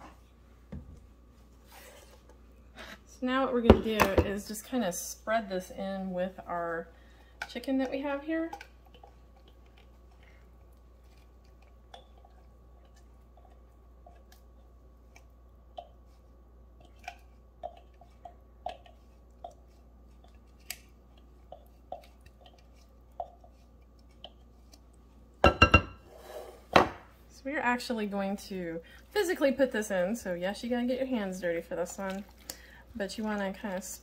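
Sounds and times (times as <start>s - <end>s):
wet squishes: 8.5s - 25.2s, 28.8s - 34.0s.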